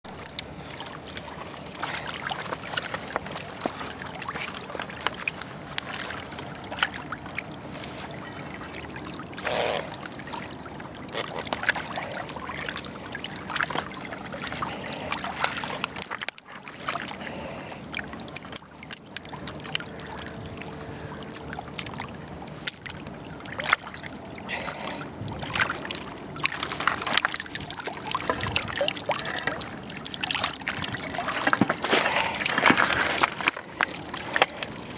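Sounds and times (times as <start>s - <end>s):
water sloshing and trickling: 0.0s - 34.9s
small knocks and crackles: 30.7s - 34.8s.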